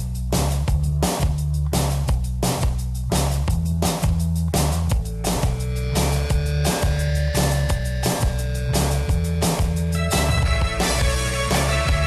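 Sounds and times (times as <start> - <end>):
pop-rock band instrumental: 3.8 - 12.0.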